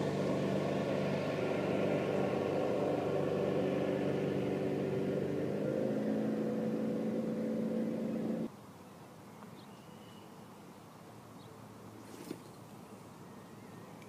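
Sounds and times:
motorboat engine running: 0.0s - 8.5s.

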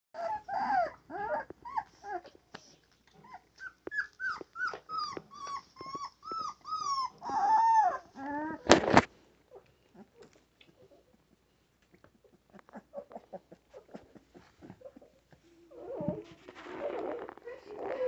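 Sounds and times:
puppy yipping and whining: 0.2s - 2.3s, 3.2s - 8.8s, 12.4s - 18.0s.

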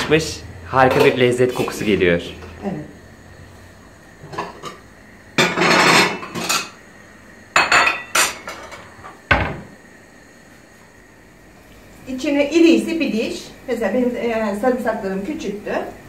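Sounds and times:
kitchen utensils clinking: 0.8s - 1.8s, 5.4s - 6.8s, 7.6s - 9.6s
dishes rattling: 5.4s - 6.8s.

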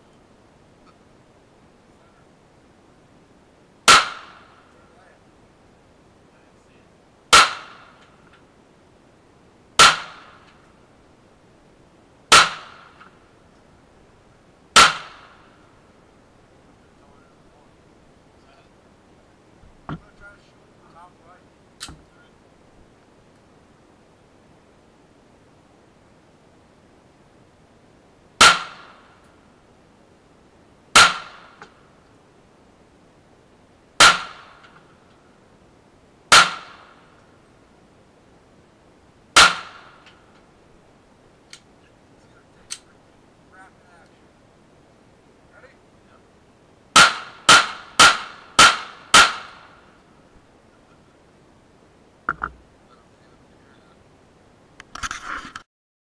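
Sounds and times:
pistol shots with ringing tail: 3.9s - 4.6s, 7.3s - 8.0s, 9.8s - 10.4s, 12.3s - 12.9s, 14.8s - 15.4s, 28.4s - 29.0s, 31.0s - 31.6s, 34.0s - 34.6s, 36.3s - 36.9s, 39.4s - 39.9s, 47.0s - 49.7s
faint click: 41.5s - 41.7s.

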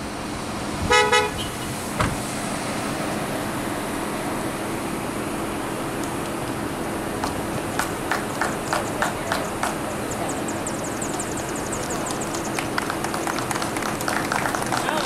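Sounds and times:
traffic hum: 0.0s - 15.0s
car horn toot: 0.9s - 1.8s.

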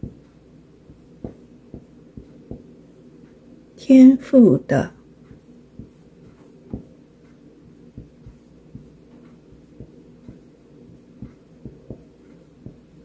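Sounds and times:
low steady hum: 0.0s - 13.0s
marker tapping on whiteboard: 0.9s - 2.7s, 5.3s - 6.9s, 8.0s - 10.5s, 11.2s - 12.8s.

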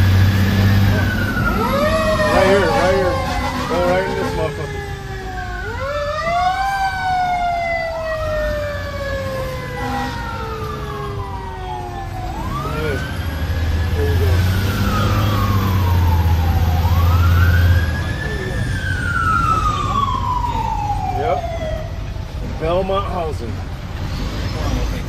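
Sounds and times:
low diesel engine drone: 0.0s - 7.2s
fire engine siren: 0.0s - 23.2s.

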